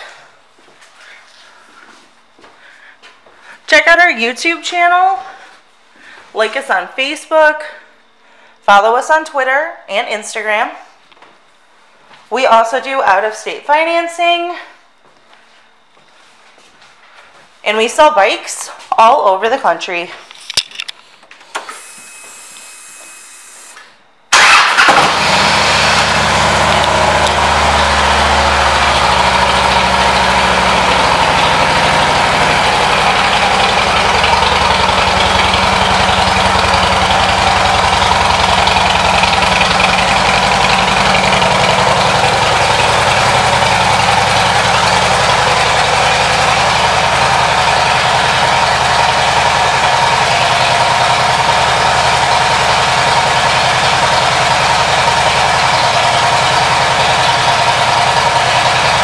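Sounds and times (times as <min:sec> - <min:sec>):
motorcycle engine starting and idling: 0:21.5 - 0:59.0.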